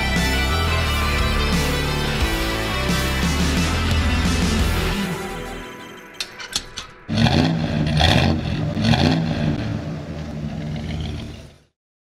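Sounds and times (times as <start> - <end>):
engine revving: 7.1 - 11.8.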